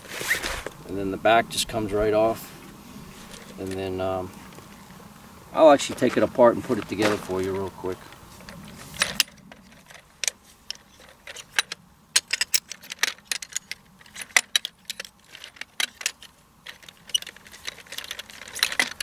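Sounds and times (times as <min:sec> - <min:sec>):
metal chair poles clicking: 0:08.5 - 0:19.0.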